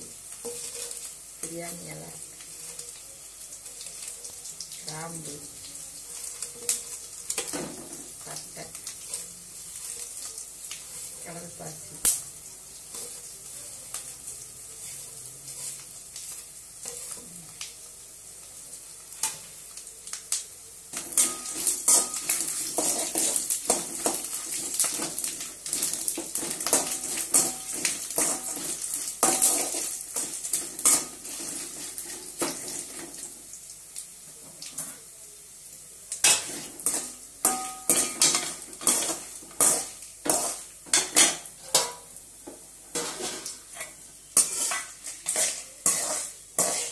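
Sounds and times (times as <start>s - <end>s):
spices rattling in pan: 0.0s - 46.9s
spoon scraping and clinking on pan: 0.3s - 1.2s, 8.8s - 11.2s, 12.9s - 13.3s, 14.8s - 17.3s, 20.9s - 33.0s, 36.2s - 42.1s, 42.9s - 46.9s.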